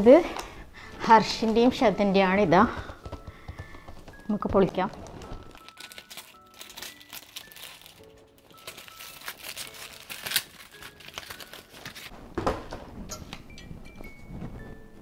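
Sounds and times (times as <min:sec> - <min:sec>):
soft background music: 0:00.0 - 0:15.0
paper packaging crinkling and tearing: 0:04.8 - 0:12.1.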